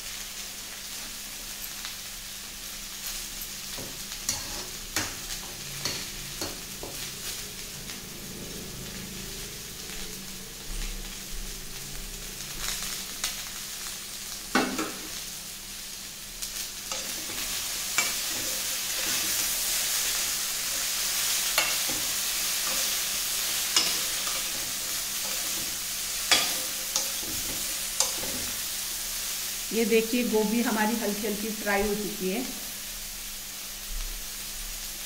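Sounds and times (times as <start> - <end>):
vegetables sizzling in a pan: 0.0 - 35.0
spatula scraping and knocking pan: 3.7 - 7.0, 21.4 - 28.6.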